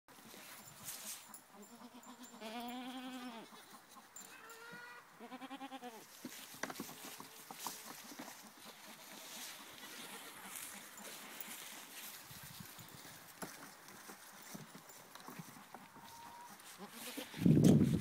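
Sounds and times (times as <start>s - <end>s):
sheep bleating: 1.6s - 3.7s, 4.3s - 6.0s.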